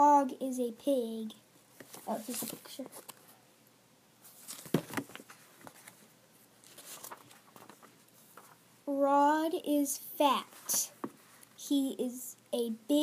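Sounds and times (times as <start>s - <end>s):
book rustling: 1.8s - 3.4s, 4.2s - 8.6s, 10.4s - 11.5s
faint paper rustles: 1.8s - 3.4s, 4.2s - 8.6s, 10.4s - 11.6s
book bumping: 4.5s - 5.9s.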